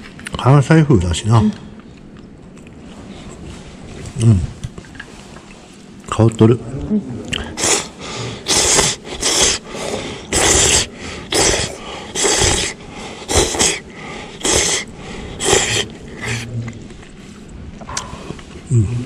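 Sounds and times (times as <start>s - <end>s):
person slurping noodles: 7.3s - 16.8s.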